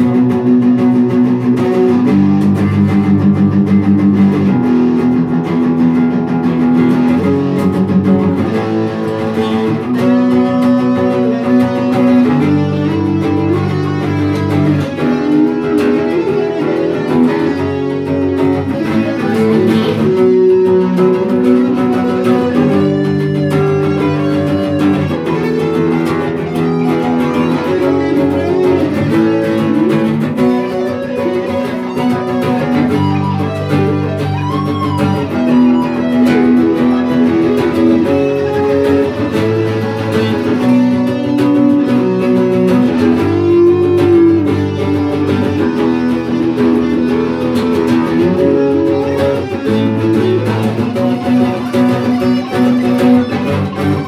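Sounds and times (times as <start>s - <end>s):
acoustic guitar rhythm chords: 0.0s - 54.0s
electric guitar lead with bent notes: 0.0s - 54.0s.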